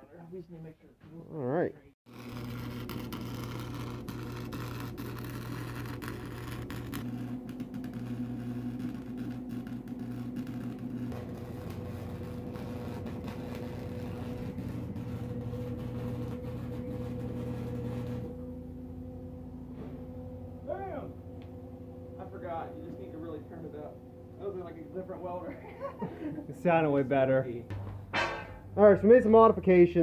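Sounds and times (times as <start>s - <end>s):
welding arc crackling and hissing: 2.1s - 18.3s
welder electrical hum: 2.1s - 30.0s.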